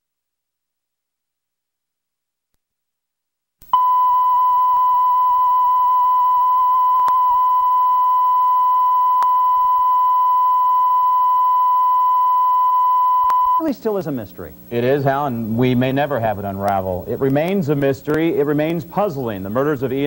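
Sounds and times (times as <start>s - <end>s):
steady test tone: 3.7s - 17.2s.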